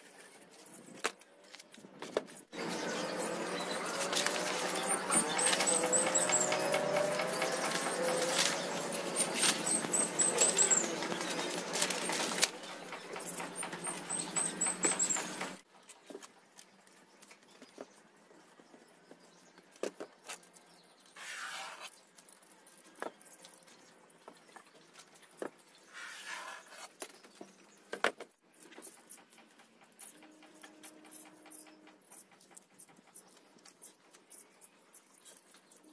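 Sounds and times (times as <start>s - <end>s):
bird chirping: 2.5s - 16.2s, 28.6s - 35.9s.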